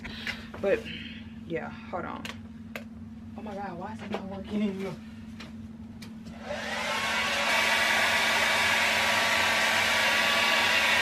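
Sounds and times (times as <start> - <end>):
hair dryer blowing: 6.3 - 11.0.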